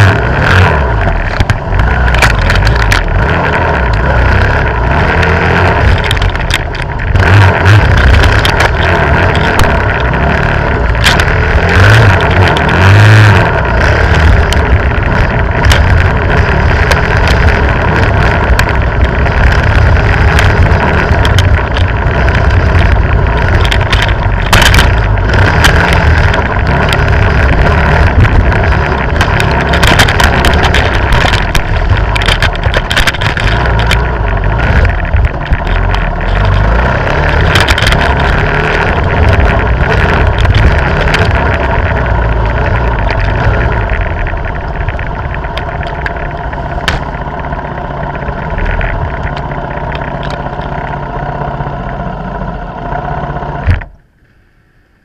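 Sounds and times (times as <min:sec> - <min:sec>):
dirt bike engine running: 0:00.0 - 0:54.1.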